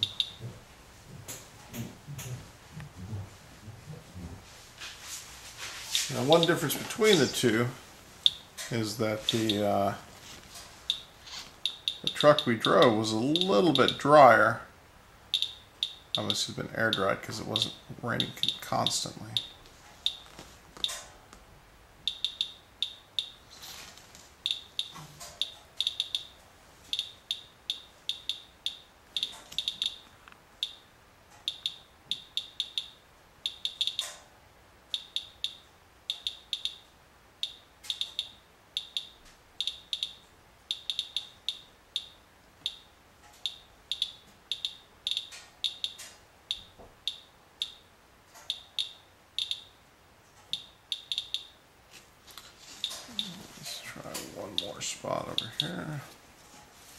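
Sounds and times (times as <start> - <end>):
geiger counter chirping: 0.0 - 0.5, 8.2 - 8.5, 10.9 - 14.4, 15.3 - 21.0, 22.0 - 23.5, 24.4 - 34.1, 34.9 - 47.9, 48.5 - 49.8, 50.5 - 51.6.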